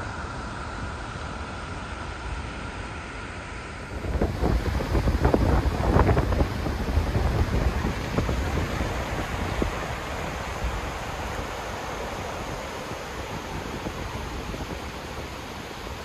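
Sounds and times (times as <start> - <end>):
wind buffeting microphone: 3.9 - 16.0
waterfall rushing: 4.0 - 16.0.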